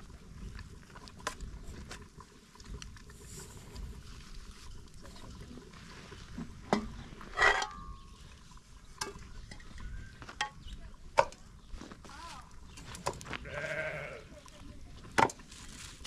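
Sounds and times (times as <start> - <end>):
utensils clinking against pots: 6.7 - 8.2
animal bleating: 13.3 - 14.5.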